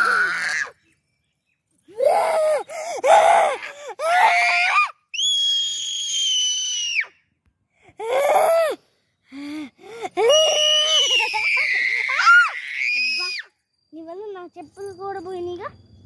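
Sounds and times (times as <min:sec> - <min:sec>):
girl screaming playfully: 0:00.0 - 0:00.7, 0:02.0 - 0:07.1, 0:10.2 - 0:13.5.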